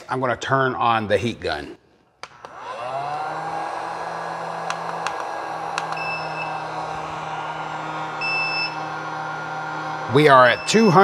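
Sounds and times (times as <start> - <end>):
heat gun fan humming: 2.2 - 11.0.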